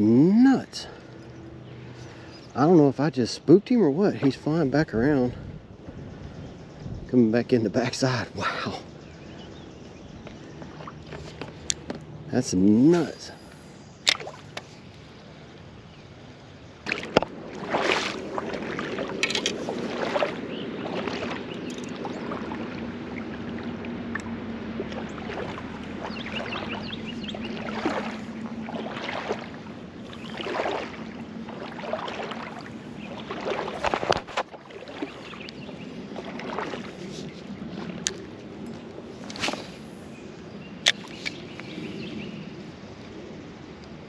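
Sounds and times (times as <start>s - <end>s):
footsteps through wet grass: 16.8s - 40.0s.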